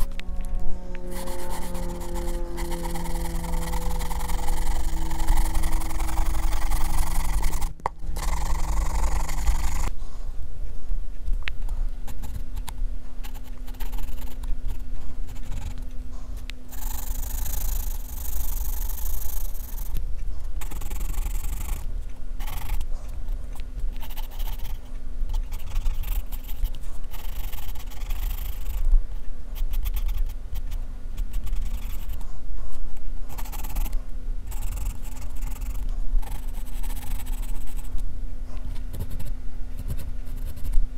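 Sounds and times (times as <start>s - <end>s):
pencil scratching on paper: 1.0s - 10.0s, 12.0s - 12.6s, 13.2s - 15.8s, 29.6s - 38.0s, 38.7s - 40.8s.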